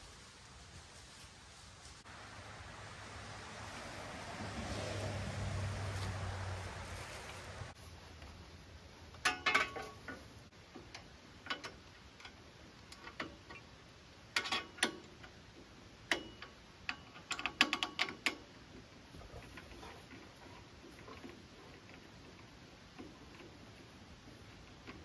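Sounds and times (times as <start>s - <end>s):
hand-crank winch clicking: 14.4s - 15.4s, 16.0s - 18.6s.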